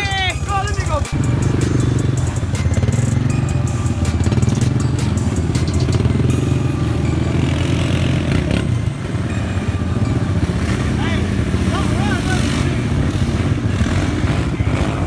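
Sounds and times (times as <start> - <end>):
atv engine running hard: 0.0 - 15.0
vehicle pushing through muddy water: 10.3 - 15.0.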